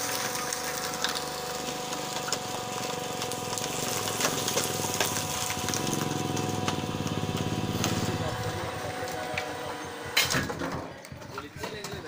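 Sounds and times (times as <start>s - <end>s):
hydraulic power pack humming: 0.2s - 10.9s
sharp clicks and crackles: 0.3s - 9.5s.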